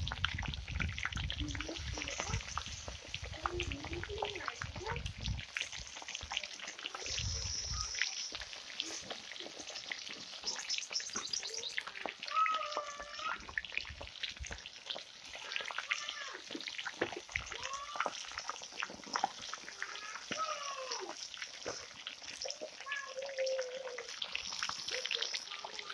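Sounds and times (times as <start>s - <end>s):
food deep-frying in oil: 0.0s - 25.9s
cat meowing: 22.8s - 24.0s.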